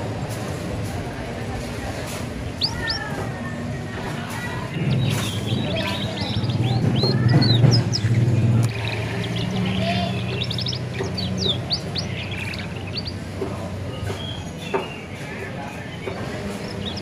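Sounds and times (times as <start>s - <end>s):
canary chirping and trilling: 2.4s - 3.3s, 4.0s - 15.1s, 15.8s - 17.0s.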